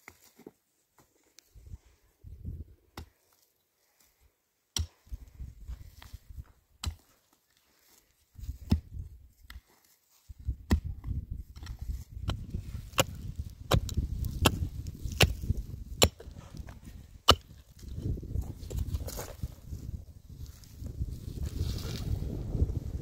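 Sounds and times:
mattock striking stony soil: 0:00.0 - 0:01.1, 0:04.7 - 0:07.4, 0:08.4 - 0:22.7.

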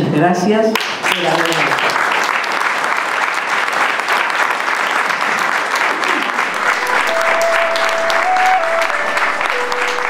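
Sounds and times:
audience applauding: 0:00.8 - 0:10.0
held music notes: 0:06.8 - 0:10.0.

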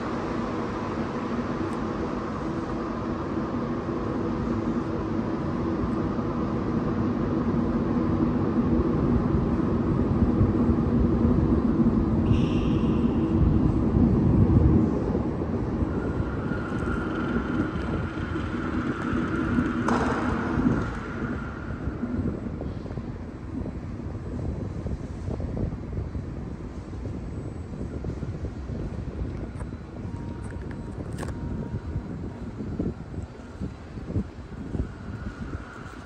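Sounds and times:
mechanical hum: 0:00.0 - 0:36.0
train rumbling in a tunnel: 0:00.0 - 0:36.0
thin high whine: 0:11.6 - 0:24.1, 0:26.7 - 0:36.0.

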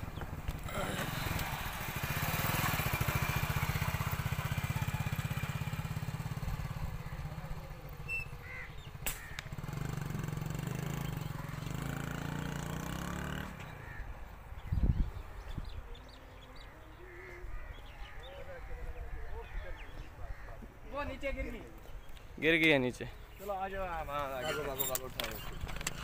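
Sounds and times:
motorcycle engine puttering: 0:00.0 - 0:14.0, 0:24.0 - 0:26.0
engine hum: 0:00.0 - 0:18.2, 0:23.2 - 0:26.0
sharp click: 0:09.0 - 0:09.5.

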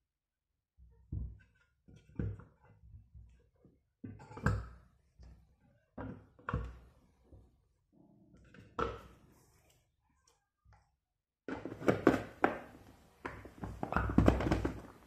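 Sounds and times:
potatoes knocking on plastic bowl: 0:11.5 - 0:15.0.

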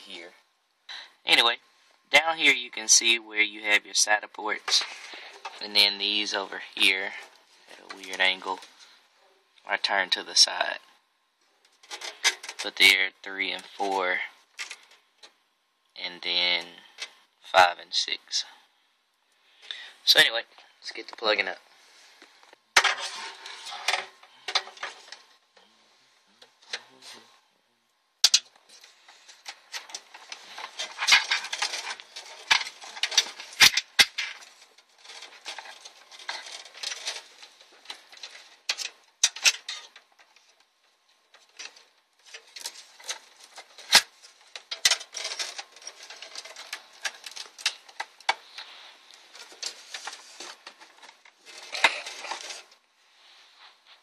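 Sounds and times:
plastic cables clicking and rustling: 0:11.6 - 0:12.9, 0:14.5 - 0:15.4, 0:22.2 - 0:25.7, 0:26.3 - 0:27.2, 0:28.2 - 0:52.9.

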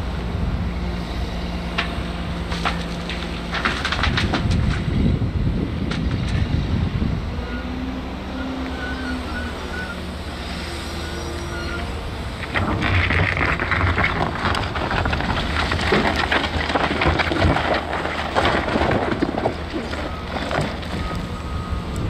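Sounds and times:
diesel engine humming: 0:00.0 - 0:22.0
rushing clattering noise: 0:12.4 - 0:21.0.

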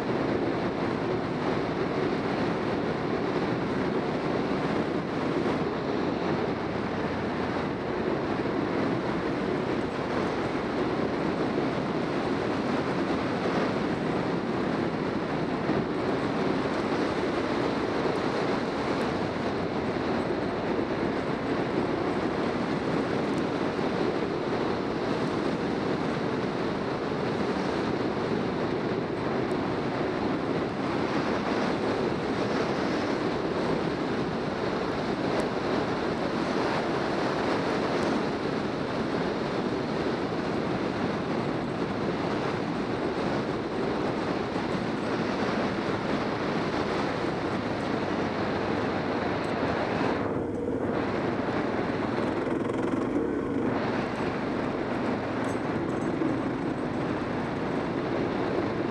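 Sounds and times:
wind rushing on microphone: 0:00.0 - 0:58.9
motorcycle engine: 0:46.9 - 0:58.9.

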